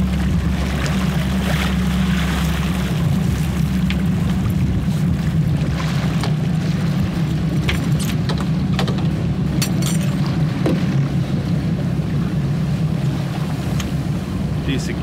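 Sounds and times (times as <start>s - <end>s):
boat engine droning: 0.0s - 15.0s.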